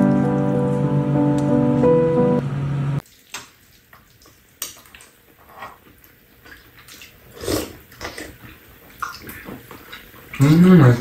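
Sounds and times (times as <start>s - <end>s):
eating sounds: 3.1s - 11.0s.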